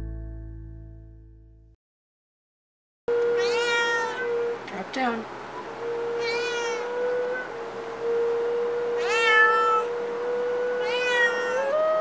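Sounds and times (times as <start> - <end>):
wooden flute holding a note: 3.1 - 4.8, 5.6 - 12.0
cat meowing: 3.3 - 4.4, 6.2 - 6.9, 9.0 - 9.9, 10.8 - 11.8.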